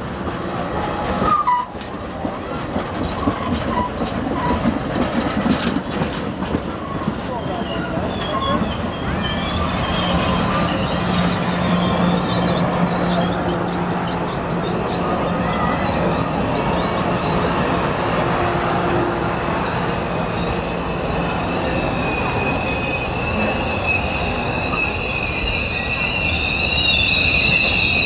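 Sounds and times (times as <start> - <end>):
train wheels rumbling on rail: 0.0 - 28.0
high wavering wheel squeal: 1.2 - 1.8, 6.7 - 28.0.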